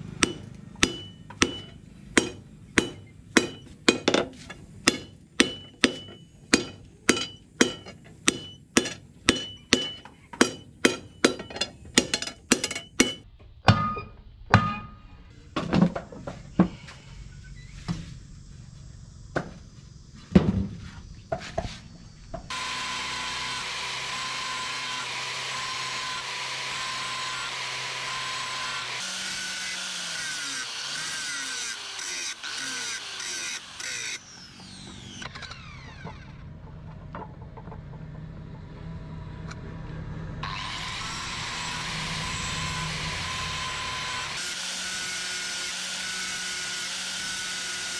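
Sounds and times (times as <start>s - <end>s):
hammer striking metal on anvil: 0.2s - 15.1s.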